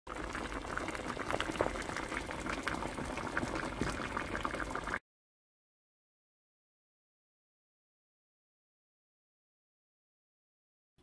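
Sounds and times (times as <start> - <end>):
stew bubbling in a pot: 0.1 - 5.0.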